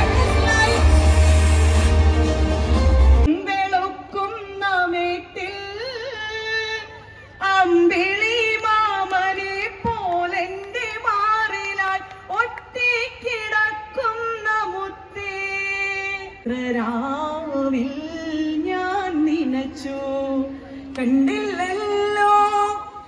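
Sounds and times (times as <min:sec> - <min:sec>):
woman singing: 0:00.0 - 0:01.2, 0:03.3 - 0:23.0
musical accompaniment: 0:00.0 - 0:03.3.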